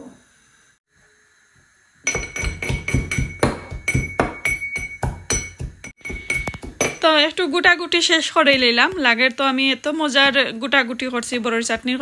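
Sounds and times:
pestle pounding in metal mortar: 2.0 - 7.2.

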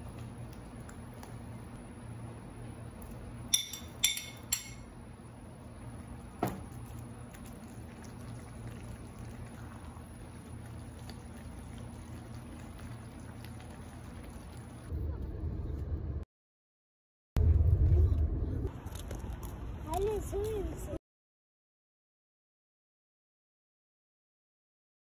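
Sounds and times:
low steady hum: 0.0 - 16.2, 17.4 - 21.0.

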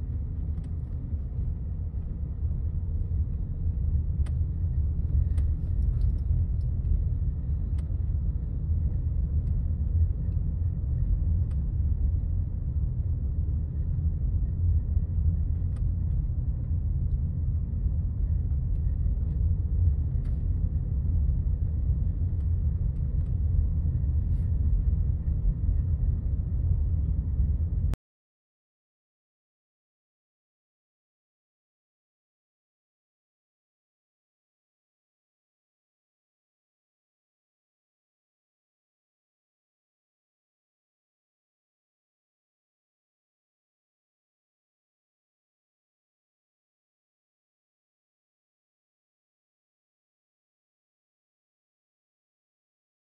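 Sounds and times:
car cabin road rumble: 0.0 - 28.0.

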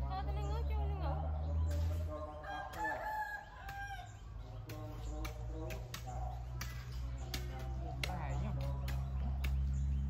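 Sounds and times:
rooster crowing: 2.3 - 4.2.

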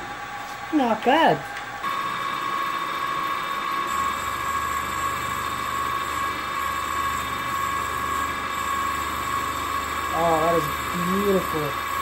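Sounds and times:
bench mill whining: 0.0 - 12.0
low hum: 1.4 - 12.0.

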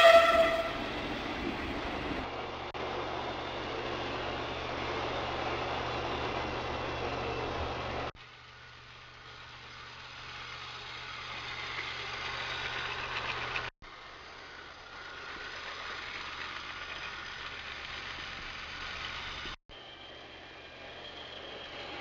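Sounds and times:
train wheels rattling on rails: 0.0 - 8.1, 9.3 - 13.7, 14.3 - 22.0
toy train motor whirring: 9.3 - 13.7, 14.3 - 19.6.

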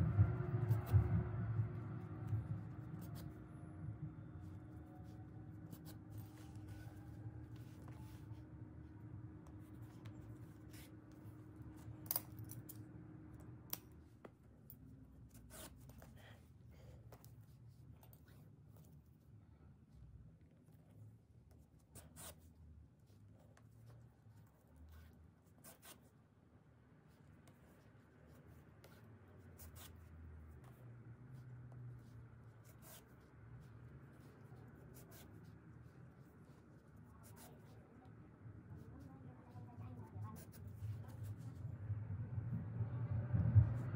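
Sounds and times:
steady low hum: 0.0 - 43.9
scratchy yarn rustles: 4.3 - 12.9, 27.0 - 41.8.

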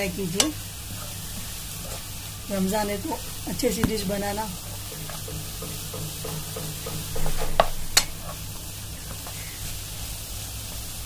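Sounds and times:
spatula stirring in a frying pan: 0.1 - 11.0
spatula knocking on pan: 3.6 - 8.4.

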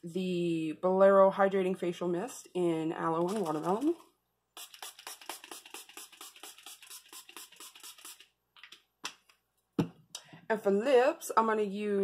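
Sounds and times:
spray bottle spritzing: 3.2 - 4.0, 4.6 - 8.4.

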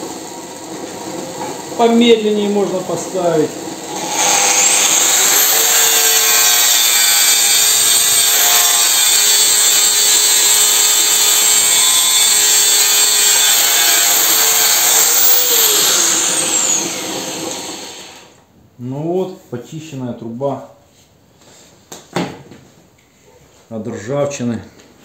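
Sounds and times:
angle grinder sanding metal: 1.8 - 18.2.

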